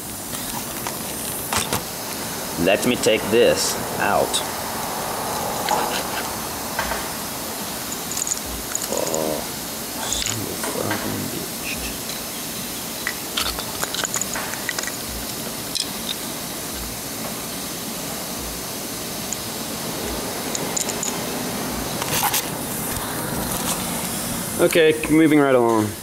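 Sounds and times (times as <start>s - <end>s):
steady hiss: 0.0s - 26.0s
small metal parts clicking: 7.9s - 9.3s, 13.0s - 16.2s.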